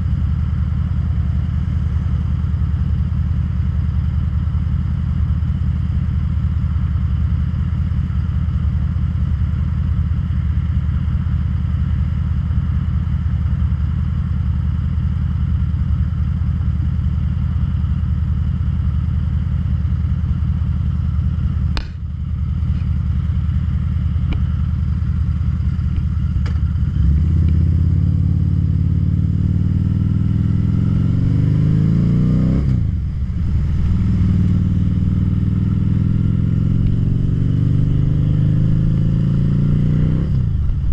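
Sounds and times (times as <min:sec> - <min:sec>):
motorcycle engine idling and revving: 0:00.0 - 0:40.9
sharp click: 0:21.7 - 0:22.0.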